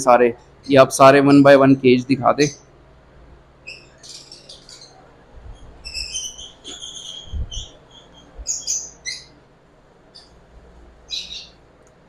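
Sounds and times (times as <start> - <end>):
lovebirds chirping: 3.6 - 9.4, 10.1 - 10.4, 11.0 - 11.7.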